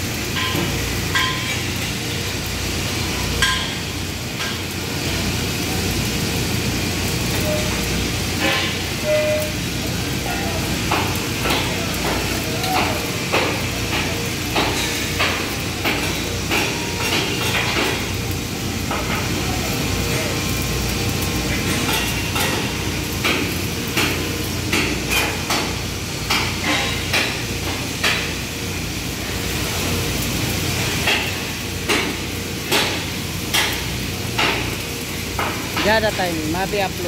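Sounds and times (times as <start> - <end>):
arc welding crackling: 0.0 - 37.0
workshop noise: 0.0 - 37.0.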